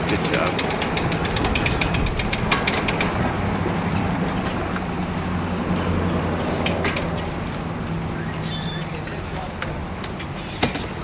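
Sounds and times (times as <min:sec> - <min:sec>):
winch ratchet clicking: 0:00.0 - 0:03.2.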